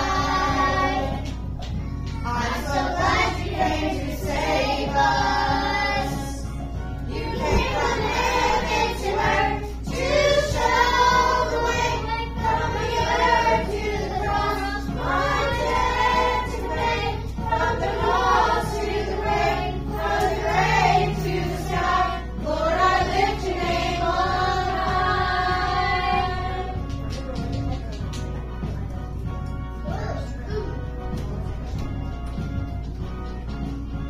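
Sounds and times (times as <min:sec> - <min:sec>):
children singing: 0:00.0 - 0:01.3, 0:02.2 - 0:06.5, 0:07.1 - 0:26.8
instrumental accompaniment with bass: 0:00.0 - 0:34.0.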